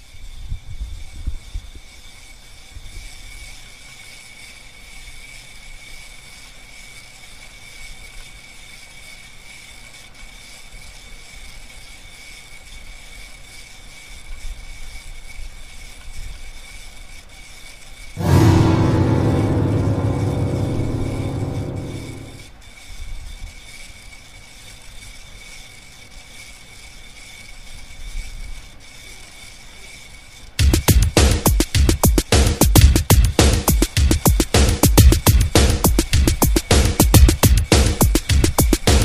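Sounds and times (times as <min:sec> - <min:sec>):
eerie music chord: 0:18.2 - 0:22.4
low rumbles: 0:18.2 - 0:22.4.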